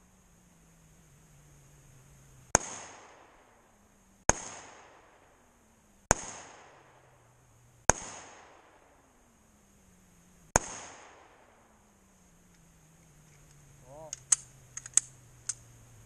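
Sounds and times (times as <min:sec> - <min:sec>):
handgun gunshots with echo: 0:02.6 - 0:03.4, 0:04.3 - 0:05.2, 0:06.1 - 0:07.0, 0:07.9 - 0:08.8, 0:10.6 - 0:11.5.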